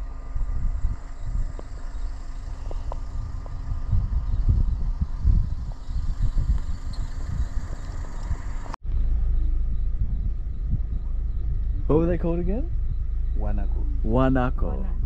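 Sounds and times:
faint steady hum: 0.0s - 15.0s
vehicle rumble: 0.0s - 15.0s.

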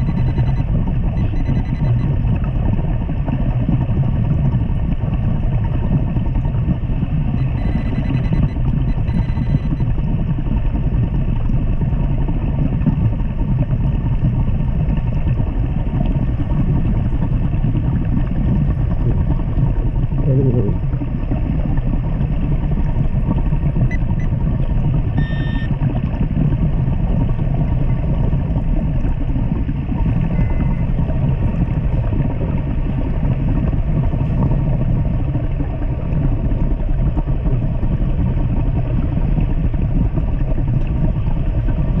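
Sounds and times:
faint steady tone: 0.0s - 2.4s, 7.4s - 9.9s, 25.2s - 25.7s, 30.3s - 31.0s
low underwater rumble: 0.0s - 42.0s
brief higher tone: 25.2s - 25.7s, 30.3s - 30.9s.

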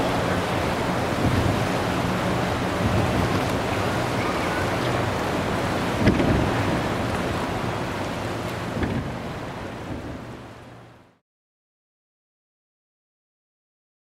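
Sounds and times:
wind on microphone: 0.0s - 10.6s
river flowing: 0.0s - 11.2s.

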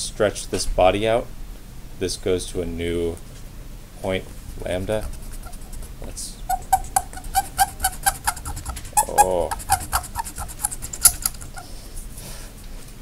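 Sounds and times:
pen eraser squeaking on paper: 4.6s - 11.8s
person humming: 6.6s - 11.6s.

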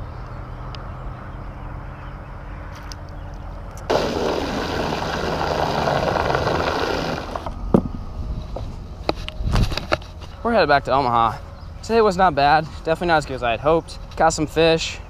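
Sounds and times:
water churning at stern: 3.9s - 7.5s
small boat motor running: 3.9s - 7.6s.

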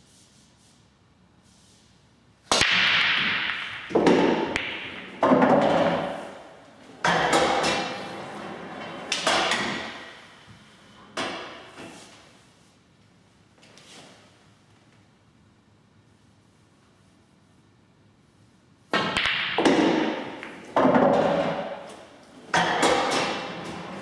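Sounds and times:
pool balls knocking into pockets: 2.5s - 8.0s, 18.9s - 21.9s, 22.5s - 24.0s
balls running inside table: 2.5s - 10.1s, 19.0s - 24.0s.

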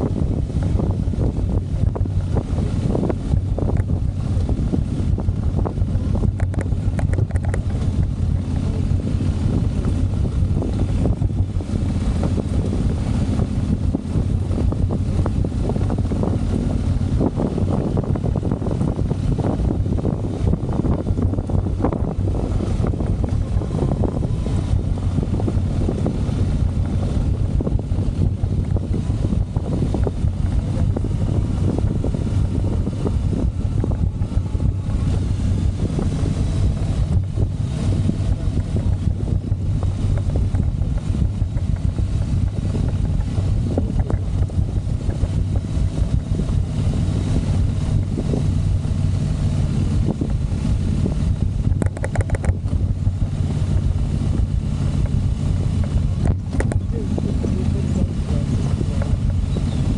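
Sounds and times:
motorcycle engine running: 0.0s - 59.9s
wind noise on microphone: 0.0s - 59.9s.

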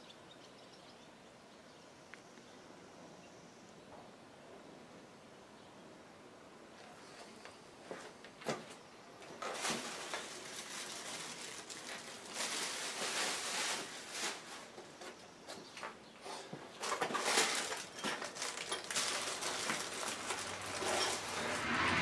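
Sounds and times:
plastic packaging crinkling: 9.4s - 14.8s, 16.8s - 21.6s.

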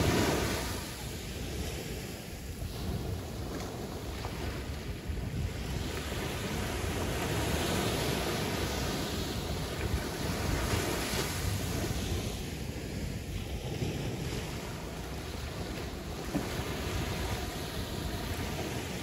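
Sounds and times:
sea surf washing in: 0.0s - 19.0s
wind rumbling on microphone: 0.0s - 19.0s.

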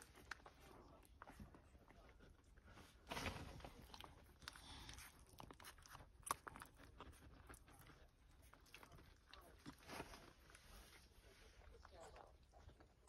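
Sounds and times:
puppies suckling: 3.7s - 13.0s.

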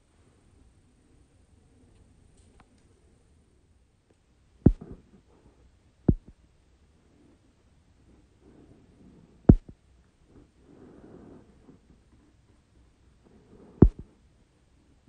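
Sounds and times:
low thumps: 4.7s - 5.0s, 6.1s - 6.3s, 9.5s - 9.7s, 13.8s - 14.1s.

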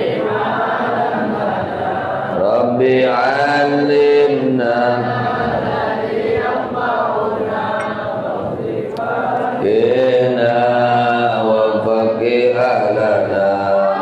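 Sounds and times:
man chanting prayer through microphone: 2.3s - 5.2s, 9.6s - 14.0s.

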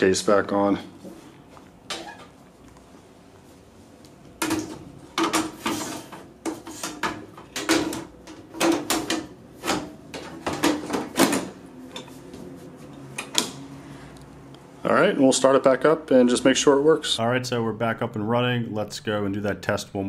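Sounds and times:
metal lid clunking and scraping: 4.4s - 12.1s.

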